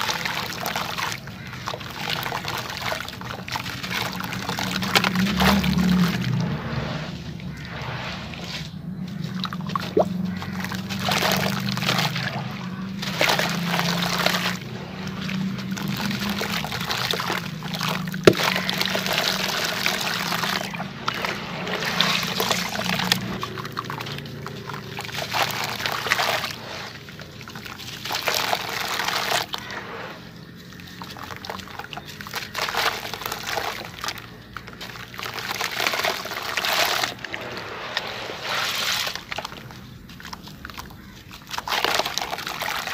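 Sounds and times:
hands squelching wet cement: 0.0 - 42.9.

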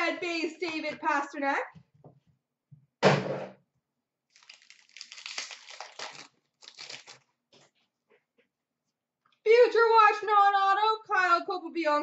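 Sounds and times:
foil card pack ripping open: 4.3 - 7.3
wrapper crinkling: 4.3 - 7.7.

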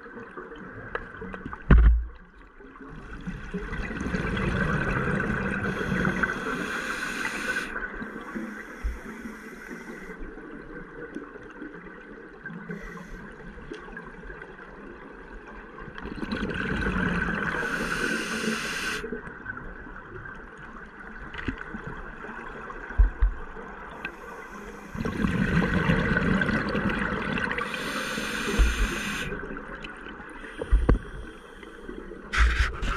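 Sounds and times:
regulator bubbles gurgling: 0.0 - 31.3
regulator hissing: 5.8 - 7.7, 17.6 - 19.0, 27.6 - 29.4.

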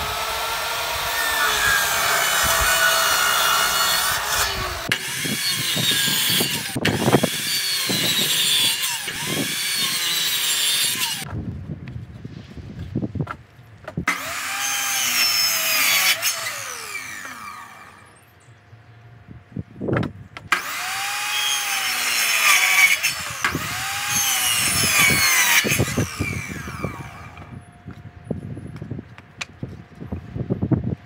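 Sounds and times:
electric mitre saw cutting wood: 0.0 - 11.3, 14.1 - 18.2, 20.5 - 27.6.

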